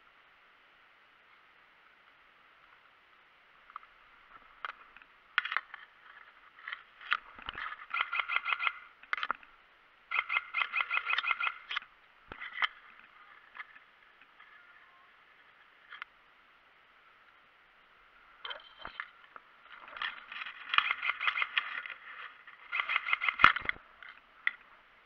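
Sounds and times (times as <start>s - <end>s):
steady hiss: 0.0s - 7.6s
airsoft guns firing: 10.1s - 11.8s.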